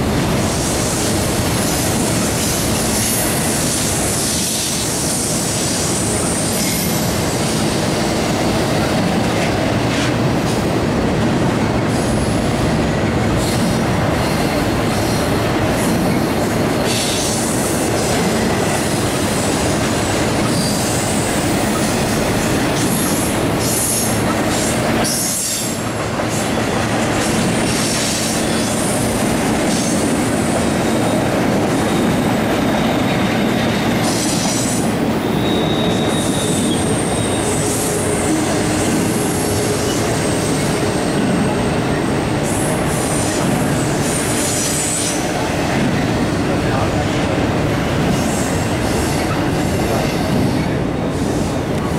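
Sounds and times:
freight train wheels rumbling: 0.0 - 51.9
high-pitched wheel squeal: 35.3 - 38.6.

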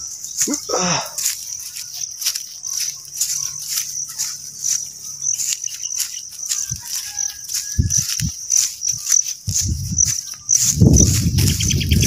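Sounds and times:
crickets chirping: 0.0 - 12.0
dull low thumps: 7.8 - 12.0.

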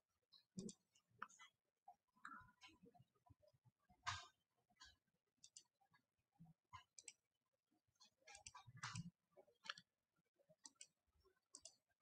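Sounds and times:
faint clicks and taps: 0.4 - 1.6, 4.0 - 6.0, 6.7 - 7.3, 8.0 - 10.0, 10.6 - 11.9.

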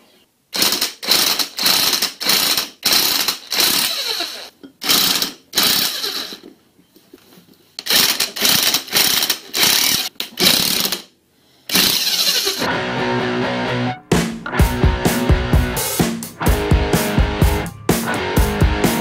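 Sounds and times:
cordless driver spinning socket: 11.7 - 12.7.

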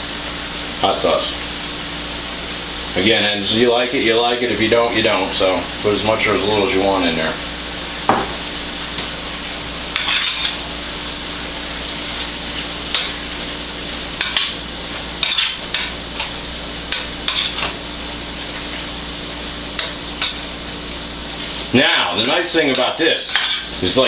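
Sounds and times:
metal utensil scraping skillet: 9.9 - 10.7, 12.9 - 13.2, 14.2 - 14.6, 15.2 - 17.8, 19.8 - 20.5, 22.2 - 23.8.

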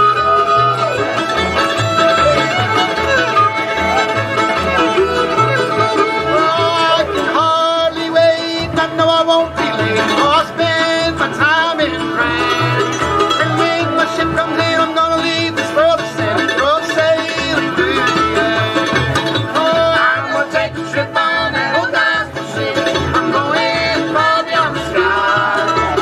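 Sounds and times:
acoustic guitar: 0.0 - 26.0
fiddle: 0.0 - 26.0
mandolin: 0.0 - 26.0
upright bass: 0.0 - 26.0
man singing: 6.2 - 26.0.

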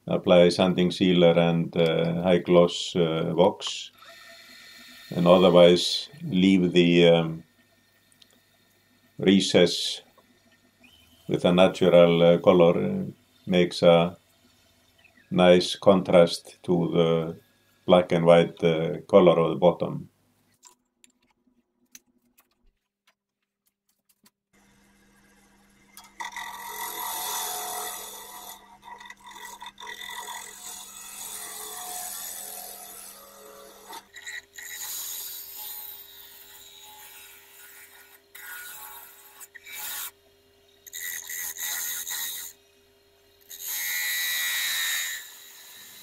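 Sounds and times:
gouge scraping spinning wood: 4.0 - 8.0, 25.9 - 42.7.

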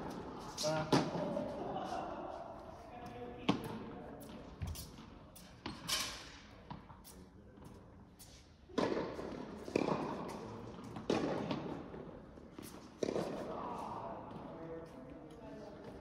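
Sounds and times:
tennis ball hit by racket: 8.7 - 11.8, 13.0 - 13.5.

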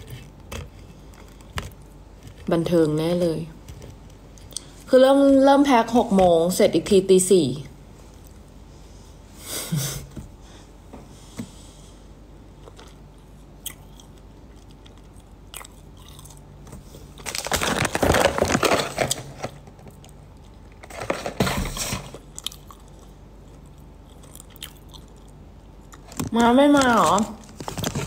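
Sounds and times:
person chewing crunchy food: 12.4 - 20.9, 22.0 - 26.2.

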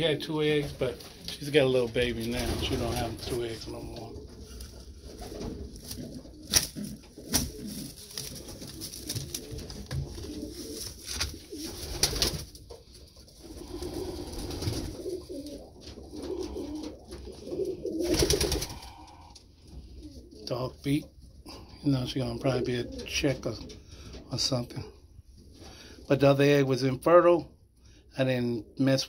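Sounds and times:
pigeons cooing: 0.0 - 24.2
straw rustling: 0.4 - 19.2.

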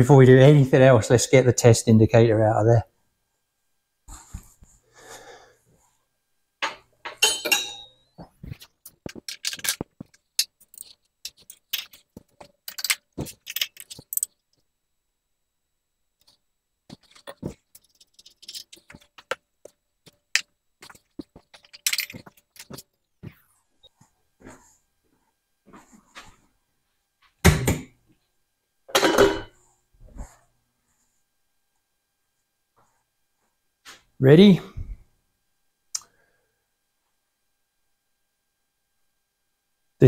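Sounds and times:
metal tools clinking: 6.6 - 8.1, 9.1 - 14.4, 16.9 - 19.4, 20.8 - 22.8.

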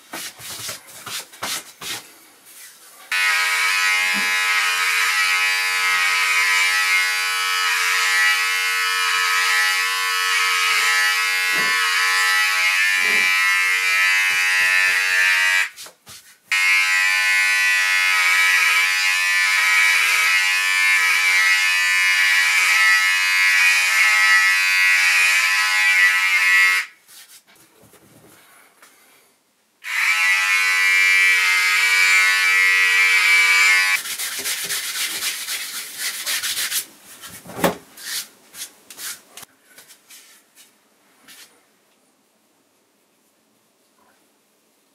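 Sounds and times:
rubbing sound: 0.0 - 2.9, 27.0 - 27.8, 34.0 - 41.6
electric hair trimmer buzzing: 3.1 - 15.7, 16.5 - 27.0, 29.8 - 34.0.

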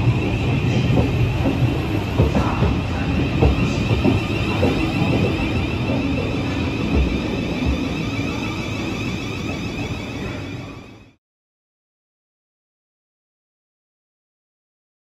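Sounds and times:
electric train high whine: 0.0 - 11.2
train wheels rumbling on track: 0.0 - 11.2.

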